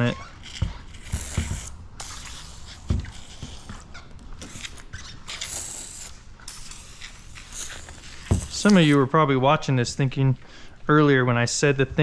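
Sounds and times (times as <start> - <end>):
pump sprayer hissing: 1.0 - 3.7, 4.4 - 9.0.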